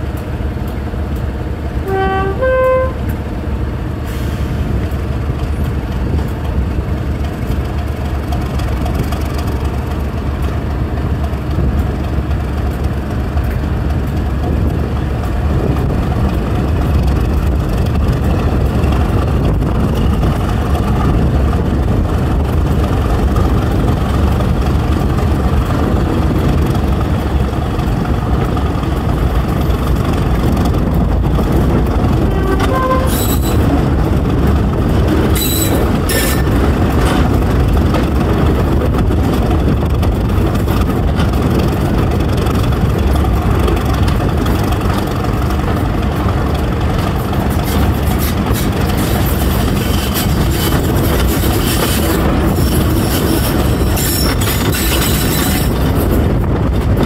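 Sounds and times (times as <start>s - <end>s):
diesel locomotive engine working: 0.0s - 57.0s
wheel and rail noise: 0.0s - 57.0s
brief high squeaks: 32.5s - 33.6s, 35.4s - 36.5s.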